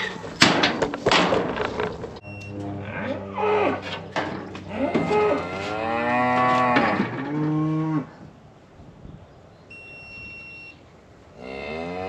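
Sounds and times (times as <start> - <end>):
cattle mooing: 2.6 - 3.9, 4.7 - 8.2
metal chute clanks: 3.7 - 5.5.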